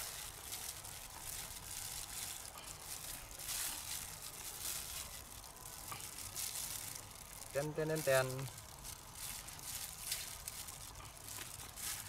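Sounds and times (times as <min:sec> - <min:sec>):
chicken sizzling over charcoal: 0:00.0 - 0:12.0.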